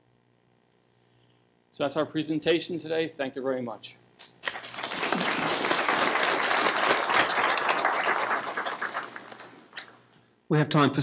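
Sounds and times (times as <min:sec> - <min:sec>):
audience applauding: 0:04.4 - 0:10.0.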